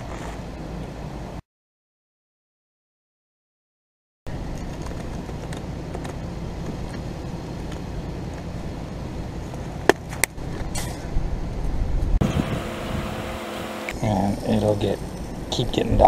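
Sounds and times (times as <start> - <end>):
steady low rumble: 4.3 - 16.0.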